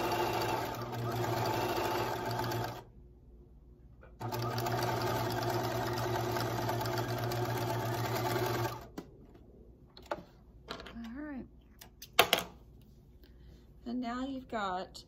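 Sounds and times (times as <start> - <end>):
sewing machine running: 0.0 - 2.9, 4.2 - 8.9.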